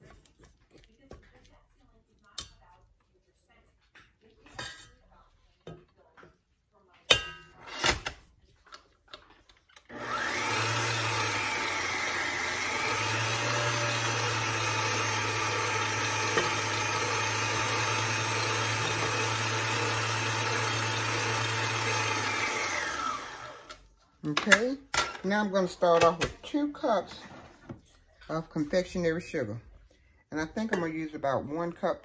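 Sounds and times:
electric mixer running: 9.9 - 23.9.

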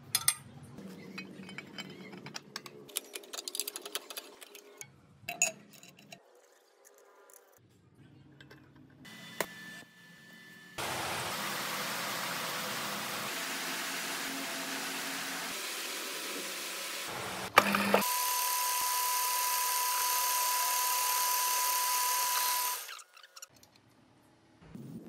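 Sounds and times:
power tool running: 10.6 - 23.0.

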